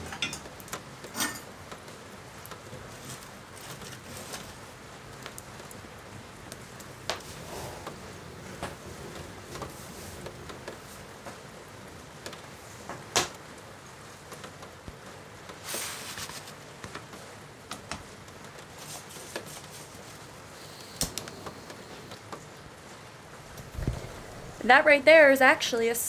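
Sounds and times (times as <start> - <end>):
camp gear clicking and rustling: 23.4 - 24.6.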